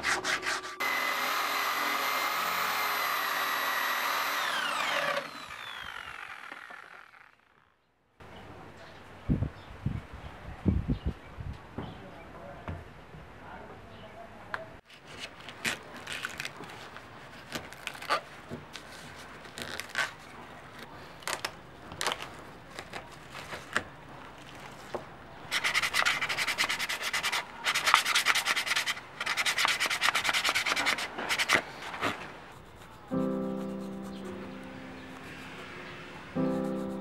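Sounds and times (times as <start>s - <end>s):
coconut husk tearing: 14.9s - 24.9s.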